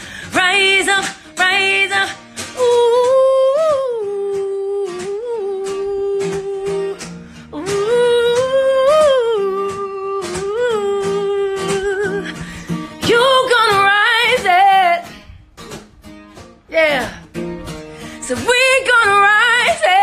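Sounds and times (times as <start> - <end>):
woman singing wordlessly: 0.0 - 15.3, 16.7 - 17.4, 18.1 - 20.0
strummed guitar: 0.0 - 20.0.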